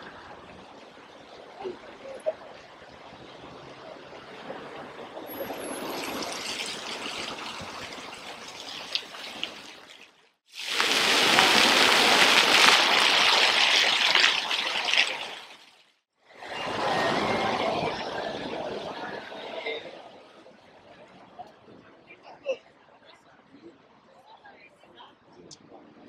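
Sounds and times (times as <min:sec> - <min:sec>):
fountain water splashing on paving: 0:05.3 - 0:15.9.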